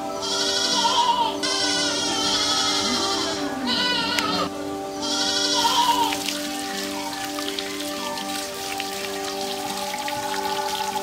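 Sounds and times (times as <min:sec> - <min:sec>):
wavering high melody: 0:00.0 - 0:11.0
held low notes: 0:01.4 - 0:07.7.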